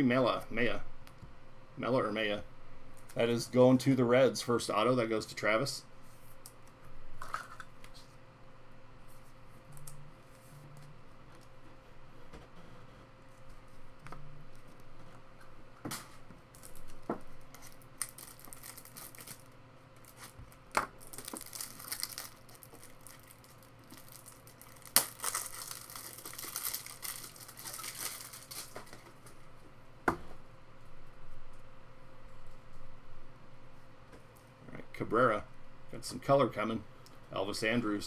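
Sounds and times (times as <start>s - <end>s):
wrapper tearing and crinkling: 16.5s - 29.1s.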